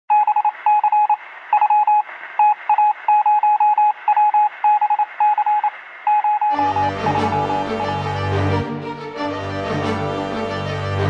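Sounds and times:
morse code beeping: 0:00.1 - 0:08.4
radio hiss: 0:03.9 - 0:06.2.

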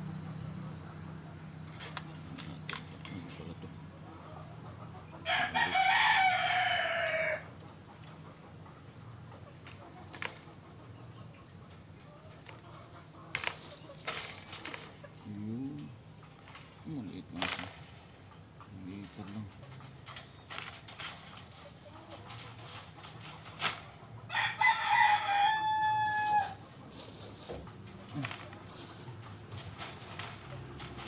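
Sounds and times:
metallic clicks of wire cage: 0:01.6 - 0:03.7, 0:11.6 - 0:24.0, 0:26.0 - 0:31.0
rooster crowing: 0:05.2 - 0:07.5, 0:24.3 - 0:26.6.

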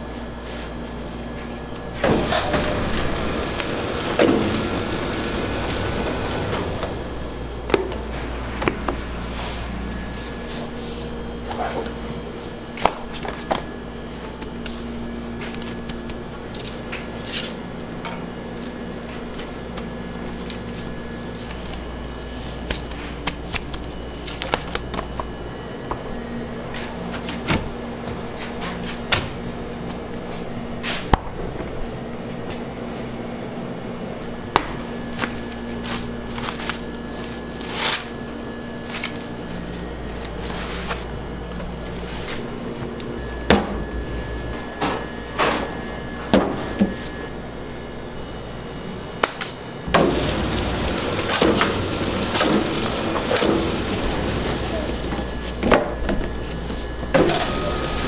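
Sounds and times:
kitchen equipment hum: 0:00.0 - 0:58.0
refrigerator door opening: 0:02.0 - 0:09.1
rustling noise: 0:07.1 - 0:12.0, 0:38.8 - 0:42.9.

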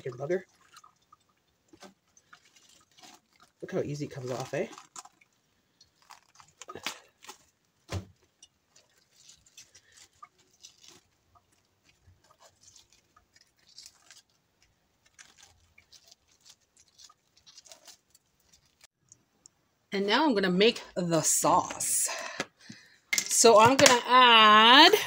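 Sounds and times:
cabbage leaves squeaking and crackling: 0:00.0 - 0:18.9.

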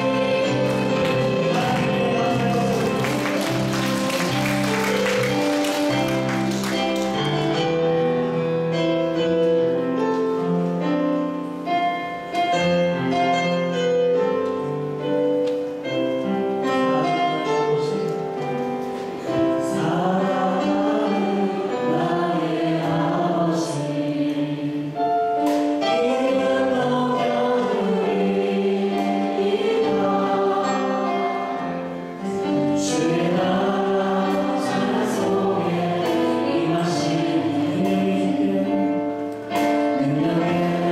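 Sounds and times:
choir singing gospel song: 0:00.0 - 0:07.9, 0:19.0 - 0:40.9
instrumental accompaniment: 0:00.0 - 0:40.9.

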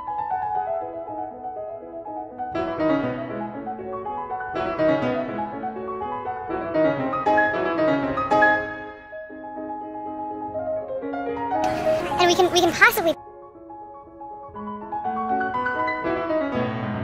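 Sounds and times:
piano music: 0:11.6 - 0:13.2.

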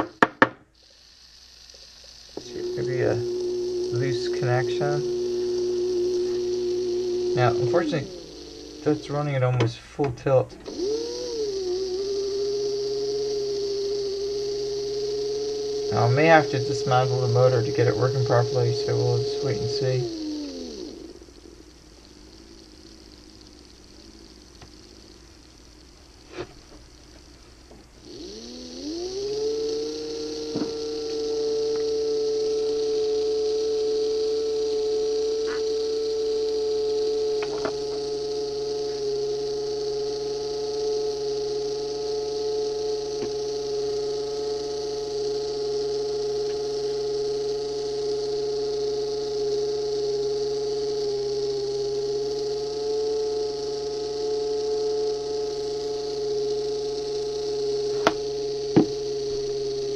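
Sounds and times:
small electric motor whining: 0:00.0 - 0:59.9
click: 0:17.5 - 0:28.5, 0:29.3 - 0:33.2, 0:35.4 - 0:36.2, 0:37.3 - 0:39.0, 0:43.1 - 0:43.6, 0:46.4 - 0:47.0, 0:56.8 - 0:59.1.

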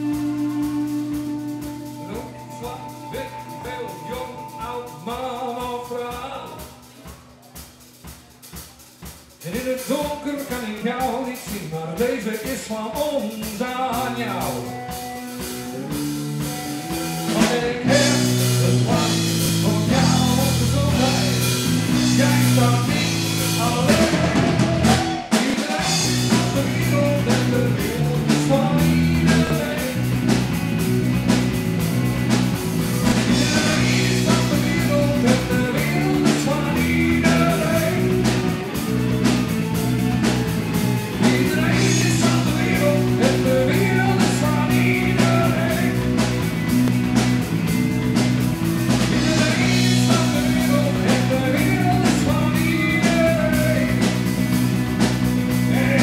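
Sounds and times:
harmonica: 0:00.0 - 0:05.9
electric guitars: 0:00.0 - 0:06.8, 0:13.3 - 0:56.0
walking bass line: 0:00.0 - 0:07.4, 0:13.7 - 0:56.0
drum kit: 0:00.0 - 0:56.0.

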